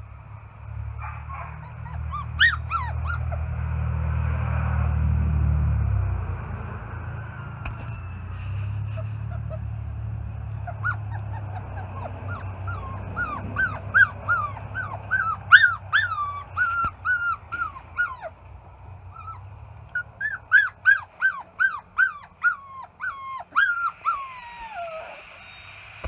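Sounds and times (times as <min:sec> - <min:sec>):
puppy yipping: 0:01.0 - 0:03.6, 0:08.0 - 0:09.8, 0:10.5 - 0:18.4, 0:19.1 - 0:25.7.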